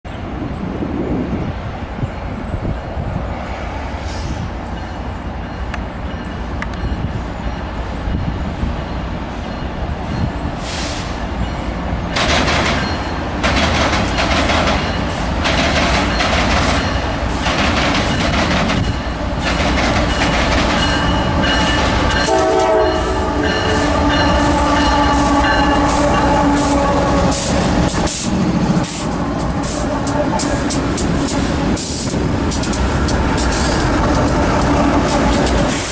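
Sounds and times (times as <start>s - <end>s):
diesel locomotive engines passing: 0.1s - 35.9s
wheels clicking over rail joints: 12.1s - 22.5s, 27.3s - 35.9s
locomotive horn chord: 22.2s - 27.6s.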